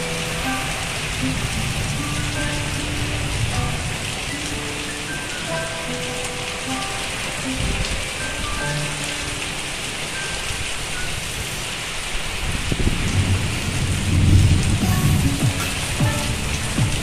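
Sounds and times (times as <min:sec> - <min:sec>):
heavy rain pouring: 0:00.0 - 0:17.0
short plinks of rain: 0:00.0 - 0:17.0.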